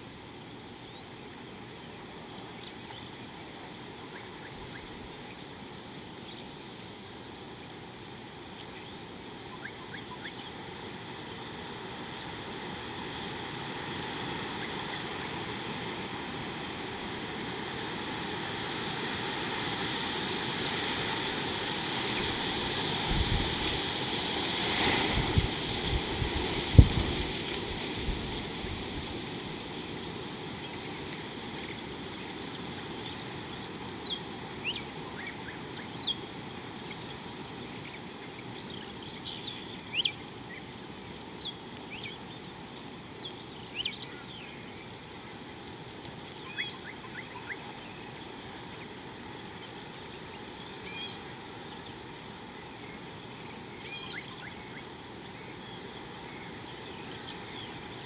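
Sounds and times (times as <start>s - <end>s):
birds chirping and whistling: 46.5s - 47.6s.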